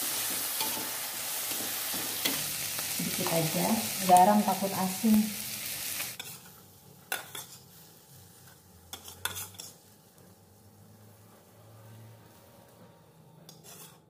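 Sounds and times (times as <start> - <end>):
stir-fry sizzling in a wok: 0.0 - 12.6
spatula scraping metal wok: 5.8 - 10.2, 13.4 - 14.0.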